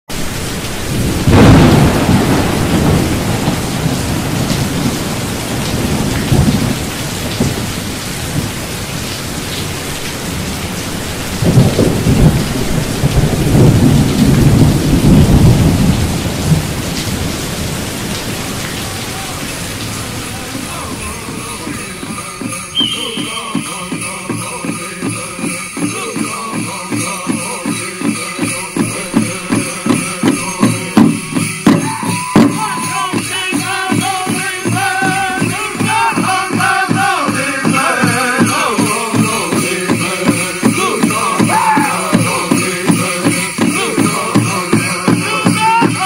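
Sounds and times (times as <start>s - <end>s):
thunder rumbling: 0.1s - 25.8s
steady rain: 0.1s - 46.0s.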